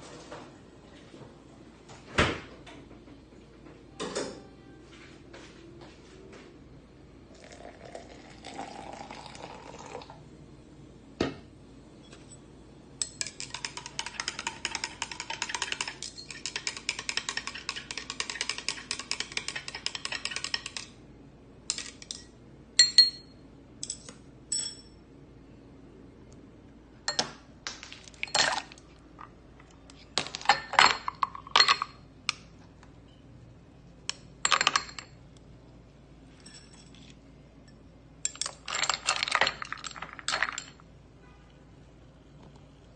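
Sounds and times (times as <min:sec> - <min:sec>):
liquid pouring into a glass: 0:07.3 - 0:10.2
spoon clinking against glass: 0:13.0 - 0:20.9, 0:21.7 - 0:25.0, 0:36.4 - 0:37.0
ice cubes clinking: 0:27.8 - 0:28.8, 0:38.3 - 0:40.8.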